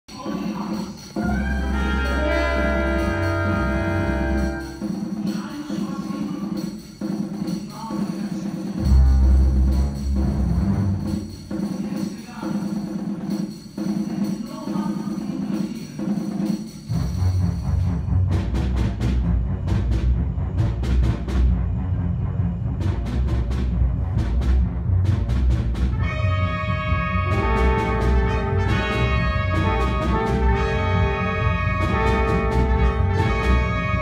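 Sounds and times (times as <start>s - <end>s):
orchestra playing: 1.1s - 6.1s, 8.8s - 11.5s, 16.9s - 34.0s
heavy low hit: 17.0s - 34.0s.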